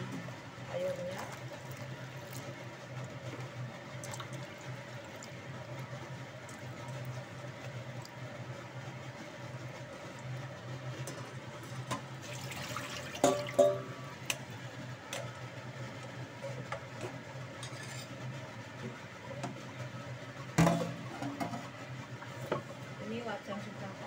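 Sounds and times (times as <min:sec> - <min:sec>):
steady low hum: 0:00.0 - 0:24.0
steel bowl clanking: 0:12.3 - 0:14.0.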